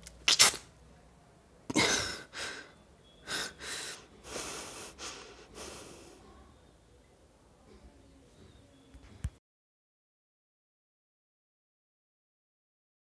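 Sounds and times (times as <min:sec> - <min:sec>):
person breathing heavily: 0:01.8 - 0:06.4.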